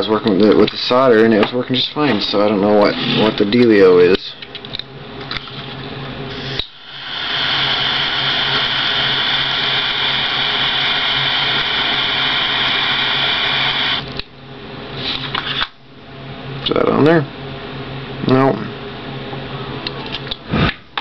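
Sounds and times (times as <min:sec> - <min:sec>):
torch lighter flame hissing: 0:06.3 - 0:14.2.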